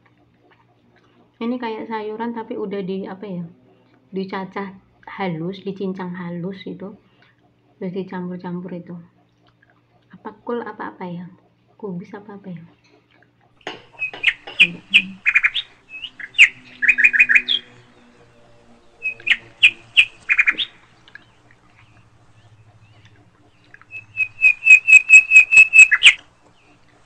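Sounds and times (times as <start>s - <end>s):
bird chirping: 13.7s - 27.0s.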